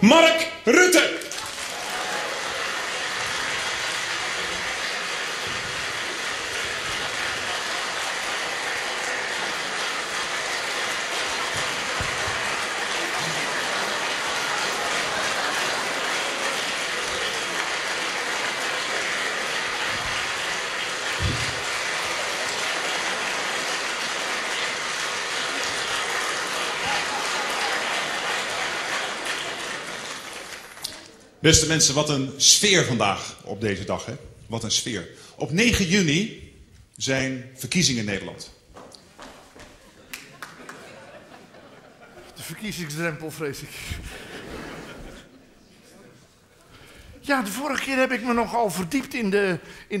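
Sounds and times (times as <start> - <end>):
crowd applauding: 0.9 - 31.3, 39.2 - 45.3.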